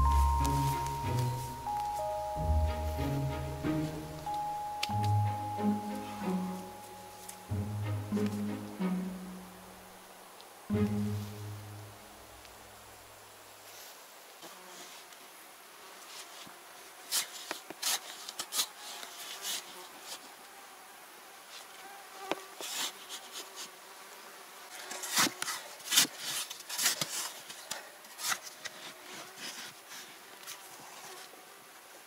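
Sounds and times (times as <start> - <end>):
shovel scraping into sandy soil: 17.1 - 20.2, 24.7 - 30.2.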